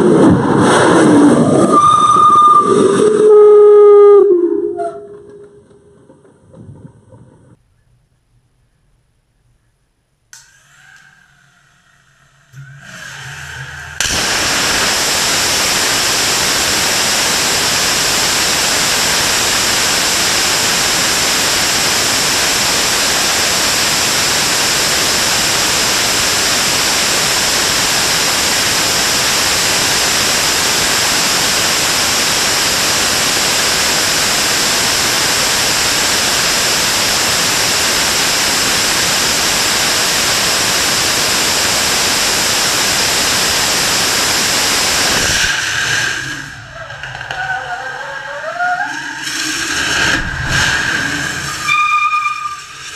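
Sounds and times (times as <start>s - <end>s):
rocket engine roaring with hiss: 12.5s - 52.9s.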